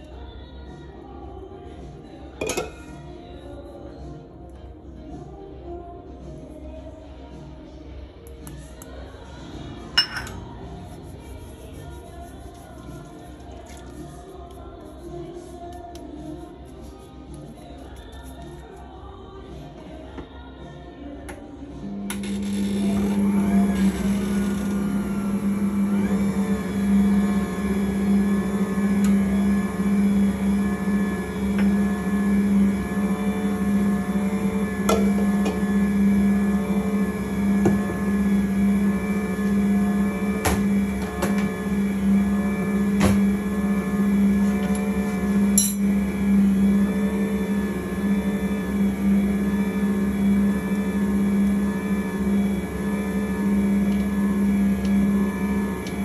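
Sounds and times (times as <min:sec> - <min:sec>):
stand mixer humming: 0:21.9 - 0:56.0.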